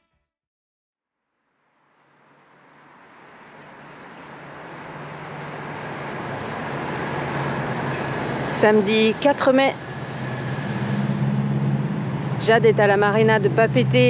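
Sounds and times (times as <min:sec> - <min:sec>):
boat engine running: 0:10.6 - 0:14.0.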